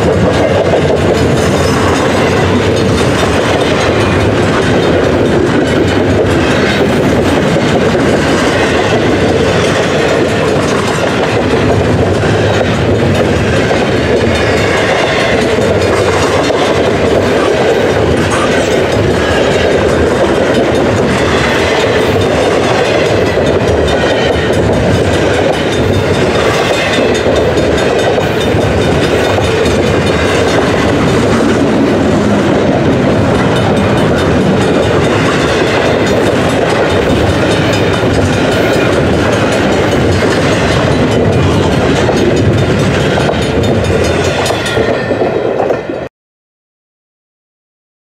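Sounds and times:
freight train rumbling past: 0:00.0 - 0:46.1.

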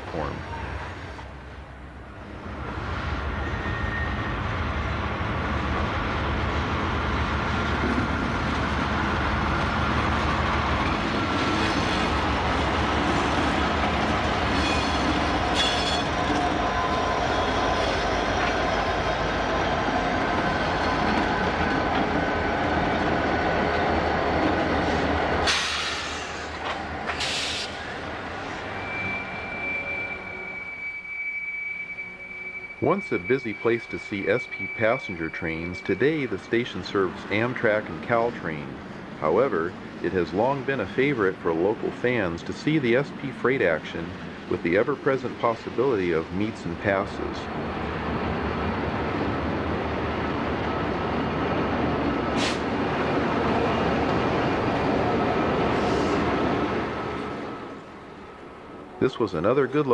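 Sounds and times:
diesel locomotive engine rumble: 0:00.0 - 0:59.9
train wheels clacking: 0:10.8 - 0:27.8.

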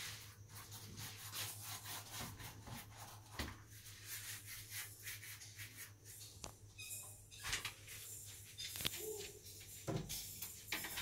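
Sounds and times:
rubbing or scraping strokes: 0:00.0 - 0:07.0.

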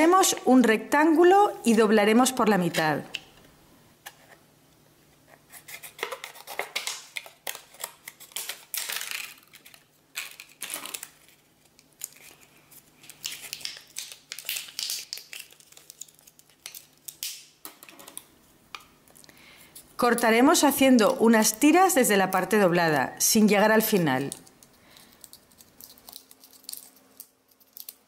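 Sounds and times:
plastic sheet crinkling: 0:05.6 - 0:18.3, 0:23.8 - 0:28.0.

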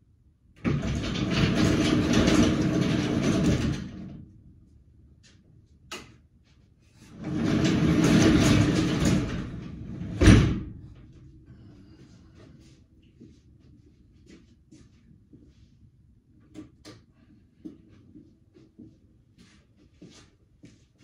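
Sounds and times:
sliding door running: 0:00.6 - 0:04.4, 0:07.1 - 0:11.0.

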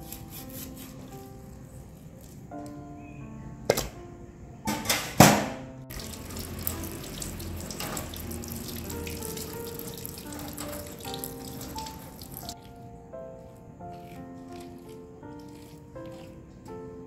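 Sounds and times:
background music: 0:00.0 - 0:17.0
loud bangs and splashes: 0:05.2 - 0:12.5
tap water running: 0:05.9 - 0:12.6.

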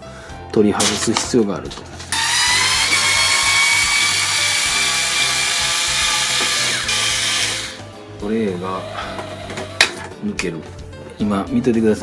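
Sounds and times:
electric screwdriver whine: 0:02.1 - 0:07.8.

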